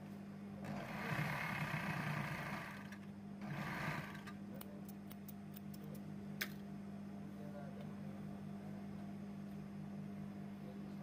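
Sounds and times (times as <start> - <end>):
steady motor hum: 0.0 - 11.0
sewing machine running: 0.6 - 4.3.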